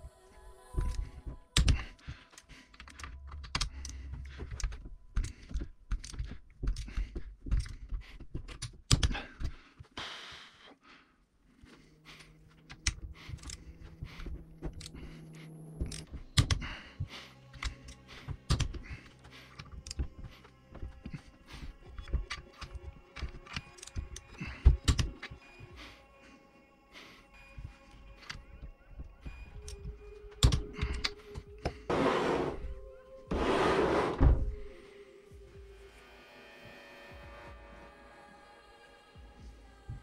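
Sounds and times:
hand tools clicking and knocking: 1.6 - 9.5, 21.9 - 25.4.

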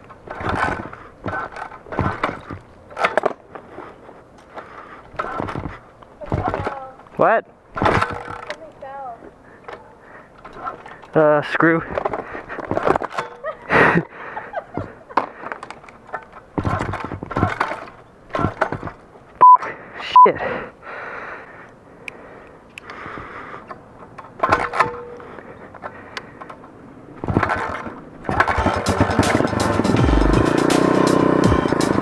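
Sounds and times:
motorbike being handled on concrete: 0.0 - 13.7, 14.5 - 19.1, 23.6 - 30.0
short high beeps: 19.4 - 20.3.

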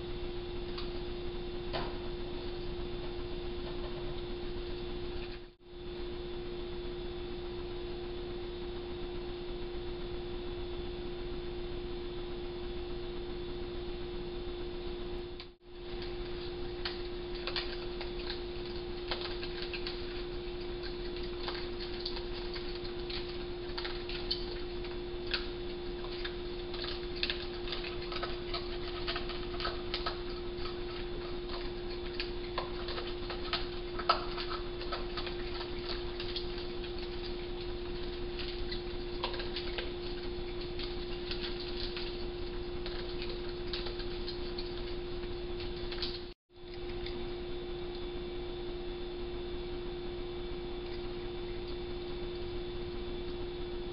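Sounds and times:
steady hum: 0.0 - 53.9
animals crunching dry food: 15.8 - 47.3.

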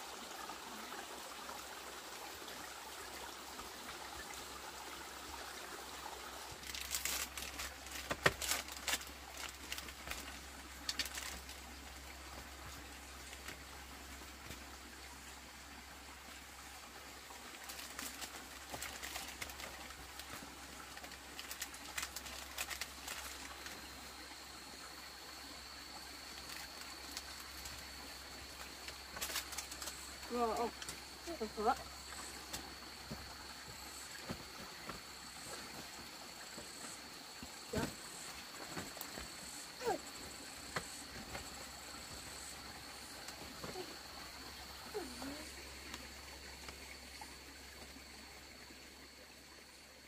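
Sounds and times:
stream trickling over rocks: 0.0 - 50.0
foil packet crinkling: 6.6 - 10.3.

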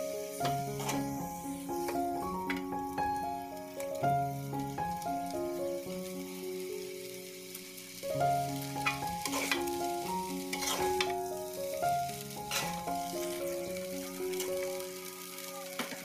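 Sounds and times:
noodles sizzling in a wok: 0.0 - 16.0
soft background music: 0.0 - 16.0
metal spatula scraping wok: 0.2 - 2.0, 8.6 - 11.2, 12.4 - 13.7.

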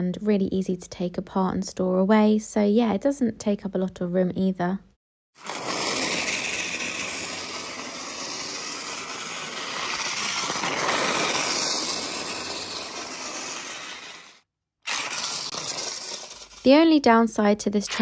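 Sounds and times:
toy race car motor whirring: 5.4 - 16.8.

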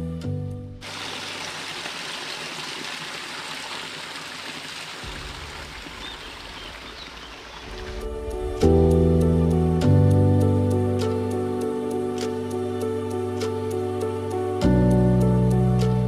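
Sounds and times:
stream of running water: 0.8 - 8.7.

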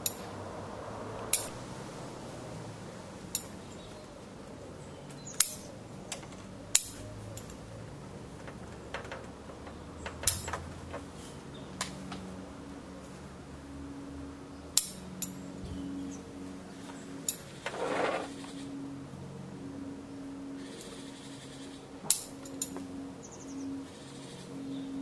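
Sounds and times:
scissors snipping twigs: 5.1 - 7.6.

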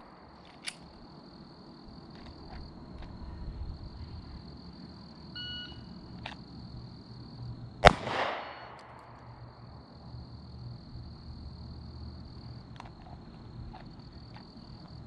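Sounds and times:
pistol shot: 7.8 - 9.2.

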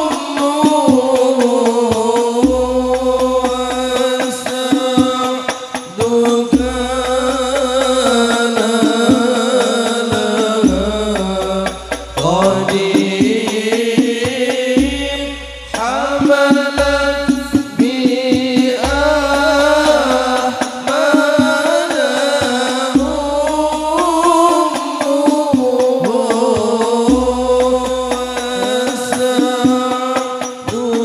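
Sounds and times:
frame drums beating: 0.0 - 31.0
man singing: 0.0 - 31.0
deep bass tones: 10.7 - 12.9, 14.8 - 17.6, 23.0 - 24.3.

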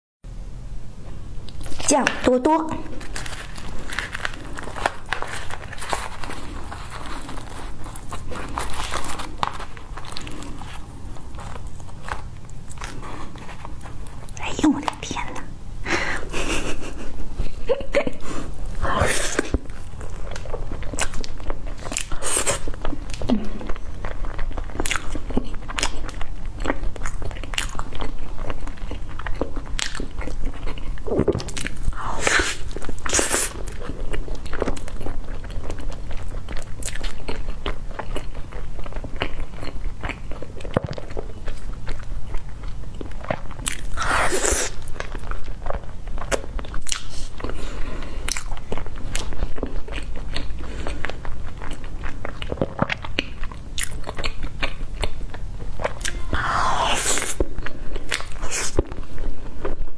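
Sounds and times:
chewing and biting pastry: 2.9 - 15.5, 16.3 - 59.9
loud crunches: 3.0 - 14.3.

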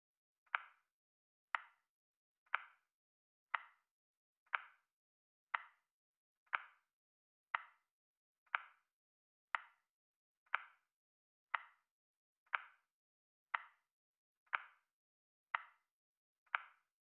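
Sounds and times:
timer ticking clicks: 0.5 - 0.9, 1.5 - 1.8, 2.5 - 2.9, 3.5 - 3.8, 4.5 - 4.9, 5.5 - 5.8, 6.5 - 6.9, 7.5 - 7.8, 8.5 - 8.9, 9.5 - 9.8, 10.5 - 10.9, 11.5 - 11.9, 12.5 - 12.8, 13.5 - 13.9, 14.5 - 14.9, 15.5 - 15.9, 16.5 - 16.9.

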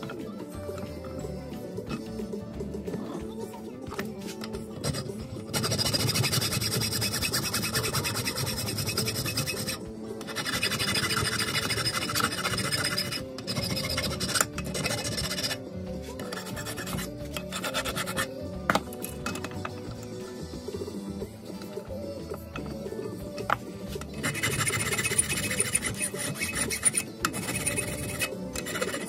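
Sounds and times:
background music: 0.0 - 29.0
hand file rasping on metal: 4.8 - 19.8, 23.4 - 29.0.

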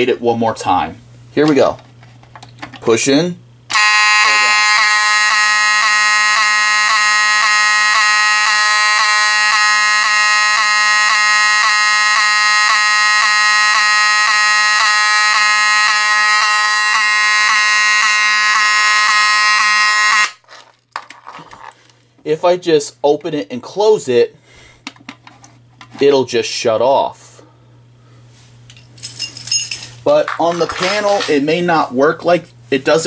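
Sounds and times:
fire alarm horn buzzing: 3.7 - 20.4.

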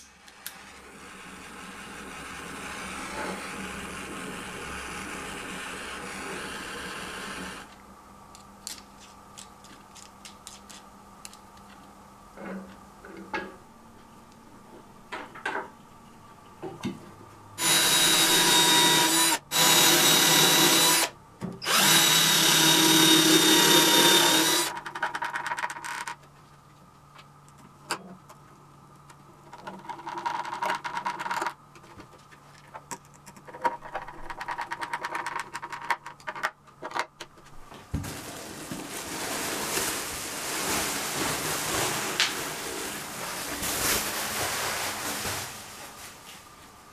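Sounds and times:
cordless drill running: 0.5 - 7.7, 17.6 - 24.7.

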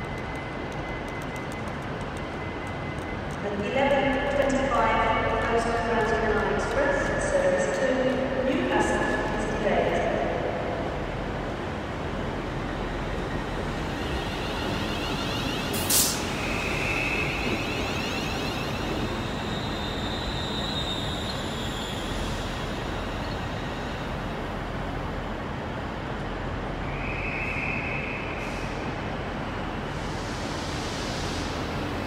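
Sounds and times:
electric train rumbling: 0.0 - 32.0
high-pitched whines: 13.4 - 23.6.

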